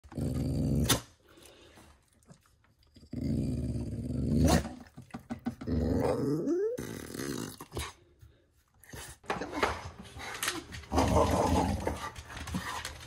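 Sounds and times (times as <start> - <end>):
dog growly moan: 3.0 - 4.6, 5.6 - 7.9.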